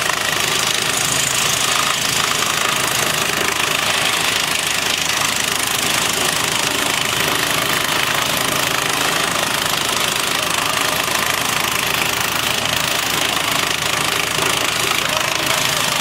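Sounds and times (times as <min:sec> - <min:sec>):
tractor driving branch chipper: 0:00.0 - 0:16.0.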